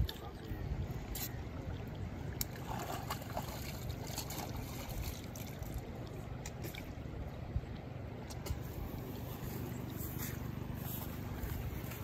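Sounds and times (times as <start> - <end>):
shallow river water: 0.0 - 12.0.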